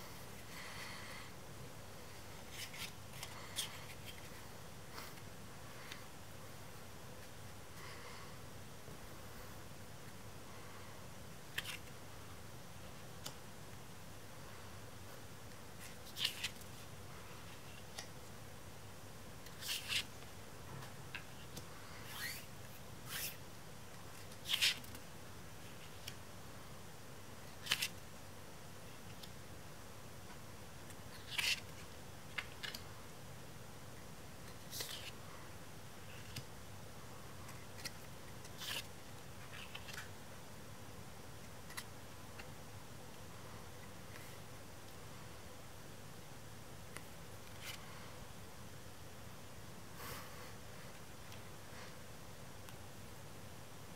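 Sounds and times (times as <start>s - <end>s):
faint steady hiss: 0.0s - 53.9s
cards sliding swishes: 19.4s - 20.1s, 21.2s - 23.4s.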